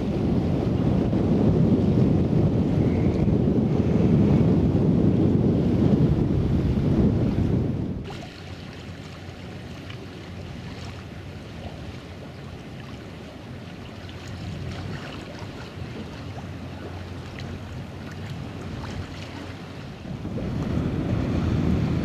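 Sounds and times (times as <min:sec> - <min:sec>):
wind on microphone: 0:00.0 - 0:22.0
waves lapping: 0:06.7 - 0:22.0.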